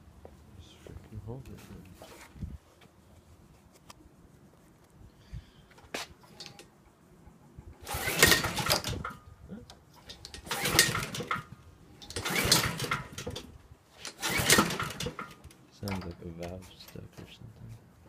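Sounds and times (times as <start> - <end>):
lawn mower engine cranking: 6.2 - 6.7, 7.8 - 9.2, 9.9 - 16.3
lawn mower pull-cord starter yanked: 7.8 - 9.2, 10.0 - 16.2.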